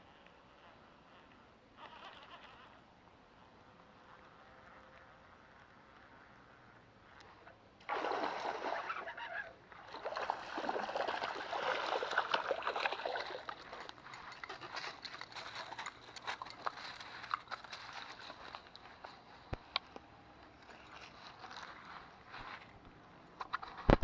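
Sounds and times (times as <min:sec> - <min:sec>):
fish thrashing water splashing: 0:07.9 - 0:09.2, 0:09.8 - 0:13.8.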